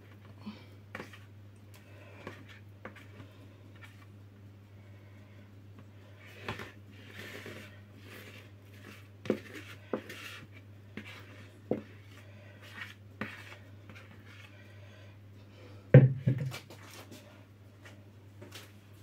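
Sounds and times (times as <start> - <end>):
spatula scraping batter from bowl: 6.2 - 14.6.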